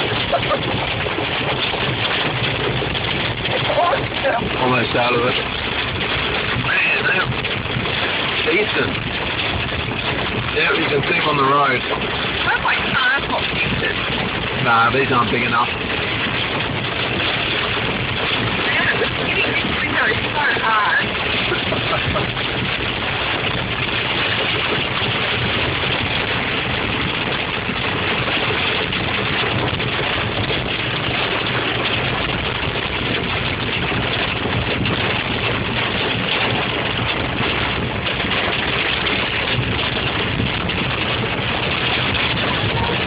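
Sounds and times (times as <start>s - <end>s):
rain and hail on car roof: 0.0s - 43.0s
tyres on wet road: 0.0s - 43.0s.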